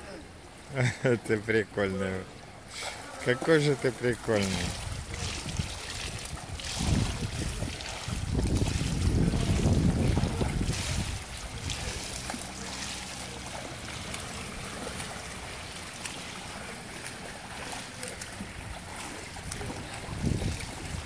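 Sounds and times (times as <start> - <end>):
pool water splashing and lapping: 0.0 - 21.0
swimmer arm stroke splashes: 2.7 - 21.0
wind rumble on microphone: 4.6 - 12.3, 18.4 - 21.0.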